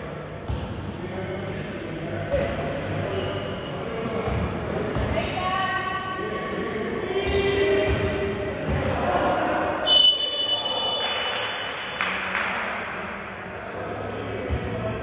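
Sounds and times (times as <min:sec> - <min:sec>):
crowd voices: 0:00.0 - 0:15.0
referee's whistle: 0:09.8 - 0:11.6.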